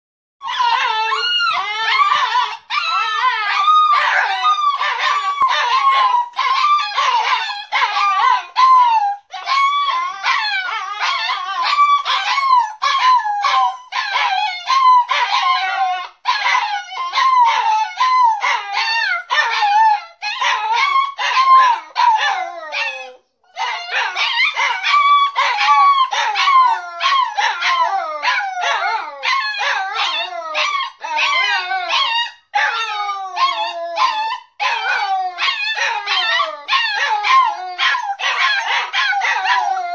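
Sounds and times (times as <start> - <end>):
puppies whining and crying: 0.4 - 39.9.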